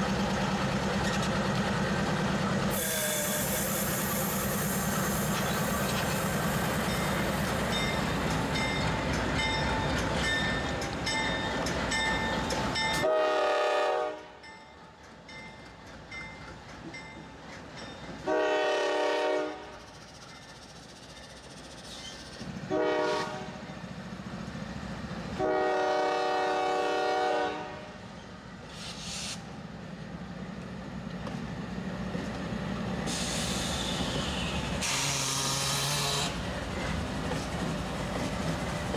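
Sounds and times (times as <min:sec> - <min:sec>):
diesel locomotives rumbling: 0:00.0 - 0:38.9
locomotive horn blasts: 0:13.0 - 0:14.4, 0:18.3 - 0:19.8, 0:22.7 - 0:23.6, 0:25.4 - 0:28.0.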